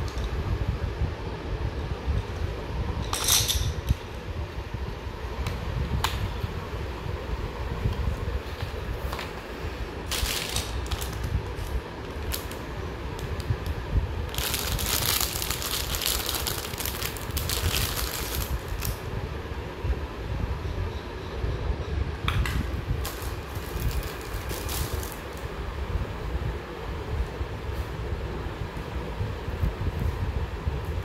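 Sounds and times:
steady low rumble: 0.0 - 31.0
plastic wrapper crinkling: 10.1 - 13.5, 14.3 - 19.0, 23.0 - 25.4.

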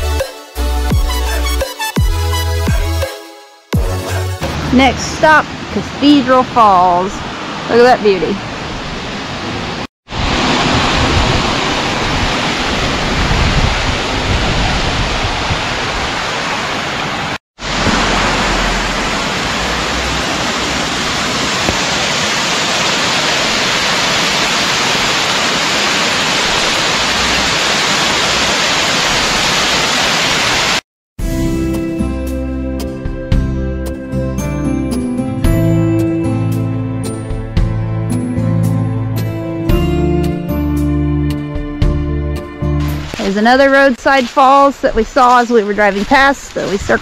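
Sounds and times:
waterfall pouring: 15.6 - 30.8.

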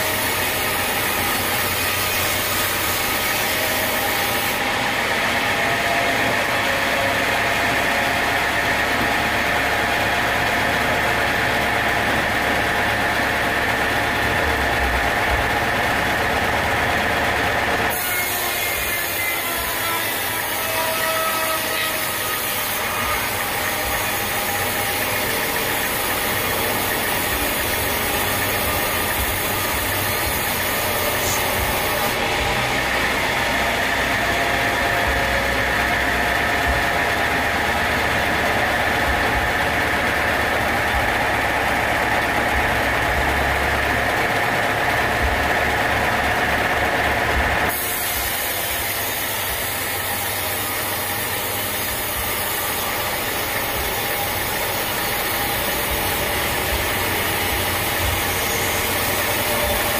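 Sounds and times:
band saw cutting a log: 0.0 - 59.9.

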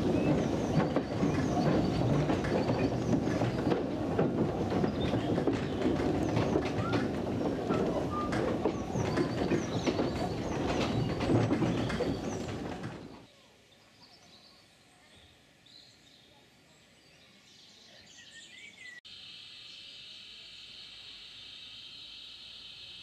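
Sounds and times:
railway wagon rumbling on track: 0.0 - 13.3
small birds chirping: 0.0 - 23.0.

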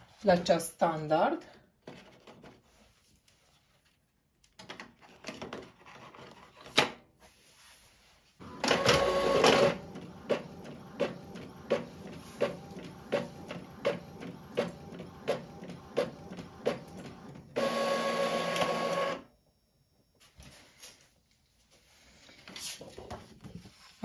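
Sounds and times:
feed rollers whirring: 8.4 - 19.2
printer humming and clicking: 8.4 - 19.2
printer click: 8.5 - 19.2.

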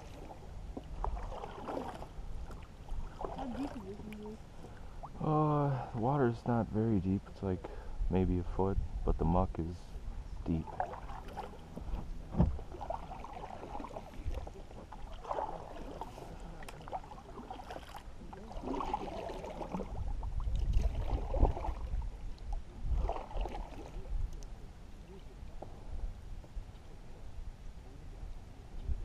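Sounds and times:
paddle swishing in water: 0.0 - 5.2, 10.6 - 24.4.

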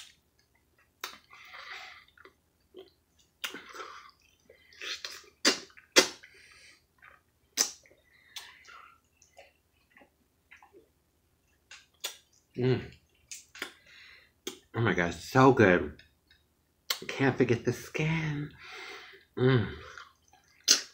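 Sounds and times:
lip smacks: 0.0 - 10.9, 11.5 - 14.7, 16.3 - 17.1, 19.9 - 20.9
wet slurping and chewing: 1.0 - 10.9.

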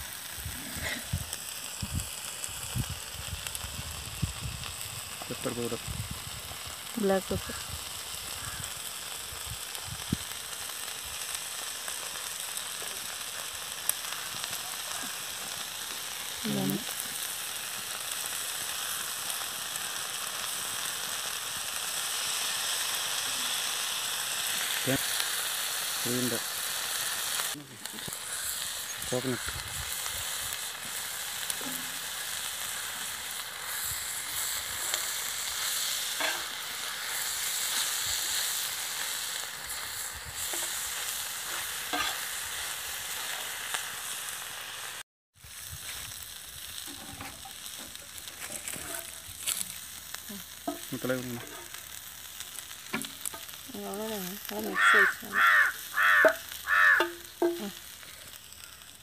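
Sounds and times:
liver sizzling in a pan: 0.0 - 59.0
metal spoon scraping a pan: 36.1 - 36.6, 41.5 - 42.2, 46.9 - 49.7, 50.6 - 51.9, 56.1 - 58.0
loud calls: 54.6 - 57.8.

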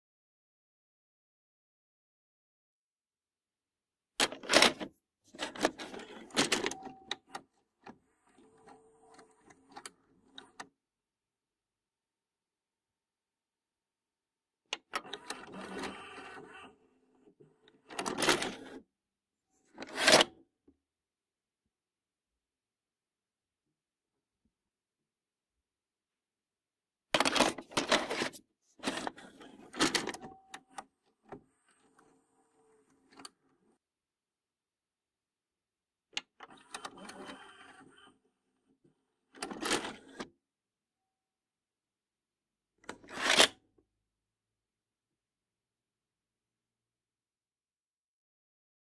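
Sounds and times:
plastic clattering and clunks: 27.2 - 31.4.

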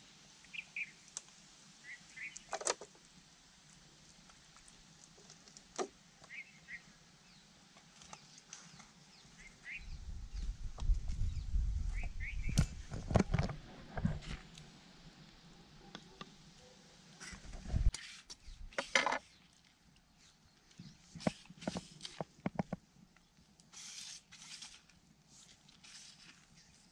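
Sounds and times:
faint bird chirps: 0.4 - 1.1, 1.8 - 2.5, 6.2 - 7.4, 8.0 - 10.6, 11.2 - 12.6
low microphone rumble: 9.8 - 14.3.

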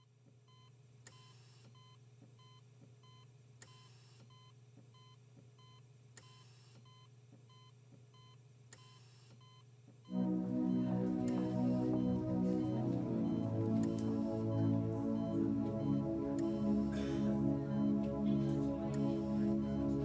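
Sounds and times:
faint low hum: 9.4 - 20.0.

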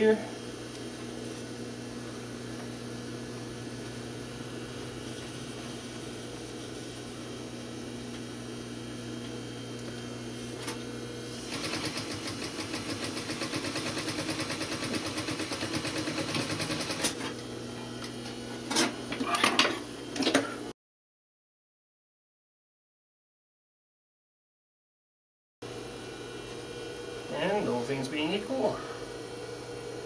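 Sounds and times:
sewing machine humming and stitching: 11.3 - 17.3.

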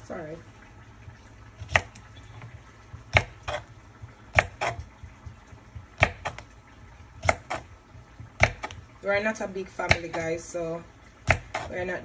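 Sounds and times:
knife slicing cucumber: 1.6 - 4.9, 5.7 - 6.5, 7.1 - 10.5, 11.2 - 12.0.

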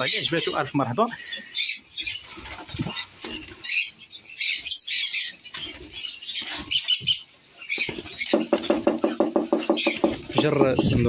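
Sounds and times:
lovebirds chirping and squawking: 0.0 - 11.0
low rapidly pulsing bird call: 0.0 - 11.0
wings flapping: 2.2 - 3.6.

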